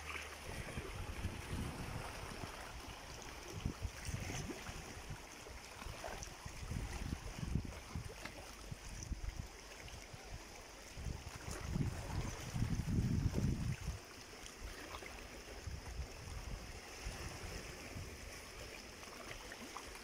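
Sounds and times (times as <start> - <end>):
waves lapping over rocks: 0.0 - 20.0
wind buffeting microphone: 0.4 - 5.2, 6.4 - 9.3, 11.0 - 14.0.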